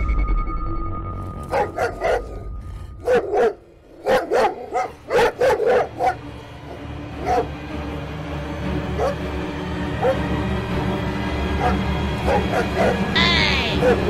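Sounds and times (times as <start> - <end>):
cartoon dog barking: 11.6 - 14.0.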